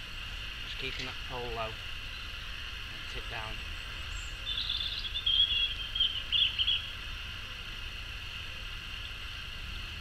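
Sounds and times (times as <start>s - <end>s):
steady faint hiss: 0.0s - 10.0s
bird chirping: 2.0s - 7.0s.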